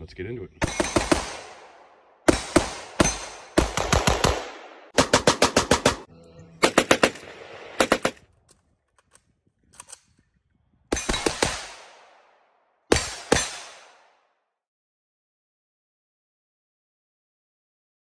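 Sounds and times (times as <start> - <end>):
rifles firing rapid shots: 0.6 - 8.3, 10.9 - 14.2.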